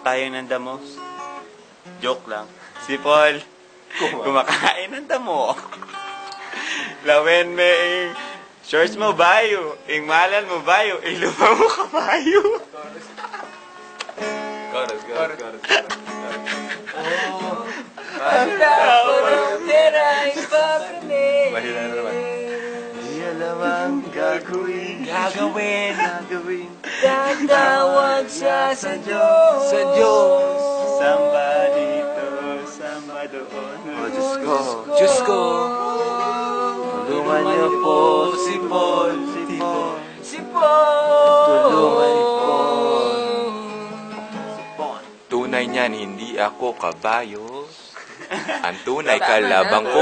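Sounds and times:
music with sliding singing voice: 0:05.6 - 0:10.0, 0:15.8 - 0:47.8.

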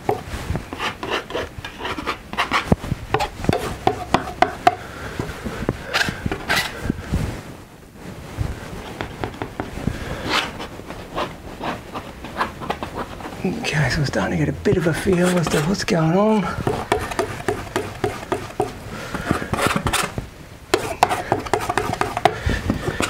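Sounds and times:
palette knife scraping paint: 0:00.0 - 0:04.6, 0:05.8 - 0:06.8, 0:08.8 - 0:13.7, 0:14.8 - 0:23.0.

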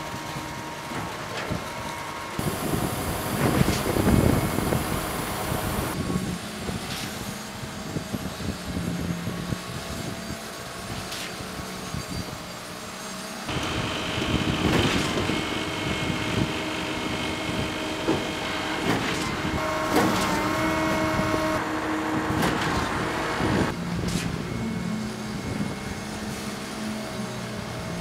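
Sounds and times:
diesel truck engines running: 0:00.0 - 0:06.0, 0:13.5 - 0:28.0.

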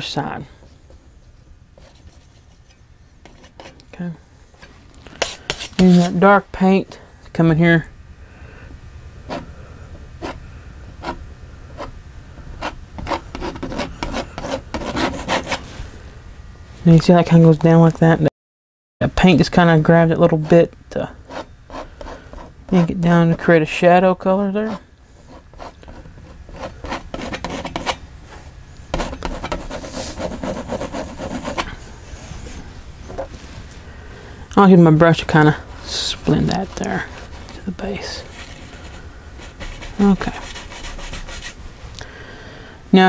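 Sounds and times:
painting knife scraping canvas: 0:01.8 - 0:03.8, 0:04.6 - 0:06.2, 0:12.6 - 0:15.7, 0:21.2 - 0:23.5, 0:24.5 - 0:28.0, 0:28.9 - 0:33.3, 0:35.4 - 0:41.6.

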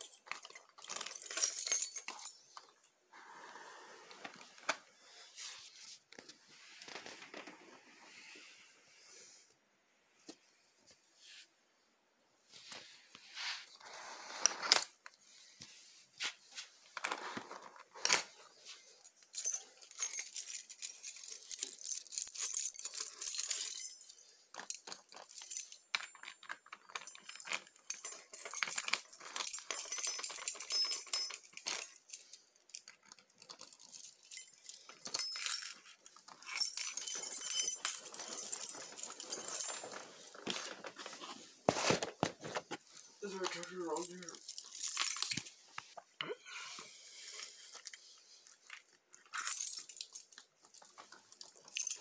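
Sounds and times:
keys jangling: 0:00.0 - 0:02.8, 0:17.7 - 0:41.2, 0:43.2 - 0:45.5, 0:47.2 - 0:52.0.

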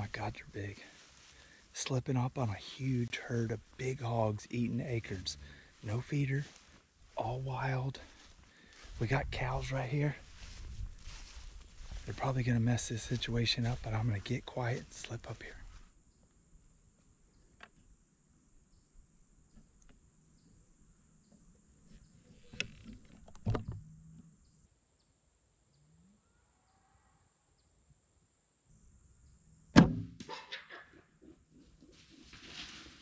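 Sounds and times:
bow shot snap: 0:29.8 - 0:30.4
rustling: 0:31.6 - 0:33.0.

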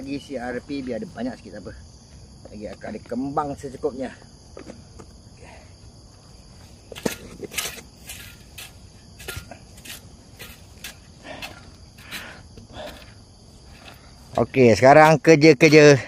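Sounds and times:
insects trilling: 0:00.0 - 0:16.0
soil rustling and scraping: 0:06.2 - 0:16.0.

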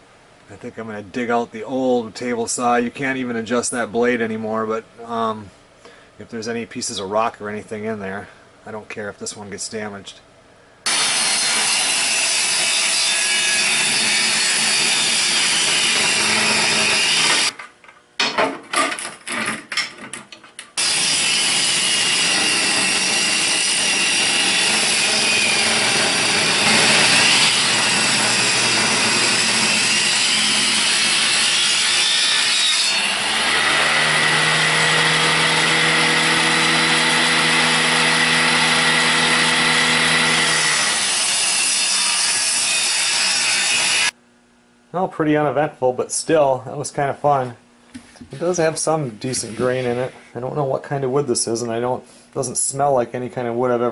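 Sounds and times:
table saw cutting wood: 0:10.9 - 0:17.5, 0:20.8 - 0:44.2.

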